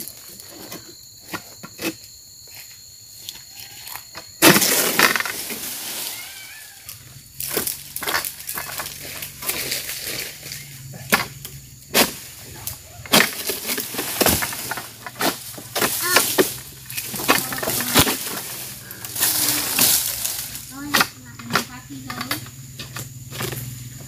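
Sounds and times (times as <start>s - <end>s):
palm leaves rustling: 2.5s - 24.0s
blade cracking frond stalks: 3.8s - 6.8s, 7.4s - 10.7s, 12.0s - 20.8s.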